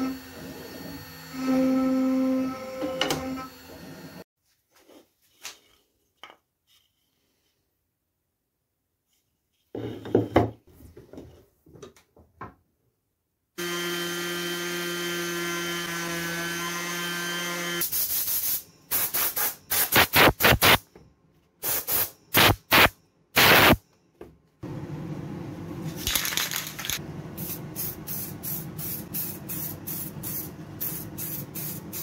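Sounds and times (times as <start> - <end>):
orbital sander droning: 13.6 - 17.8.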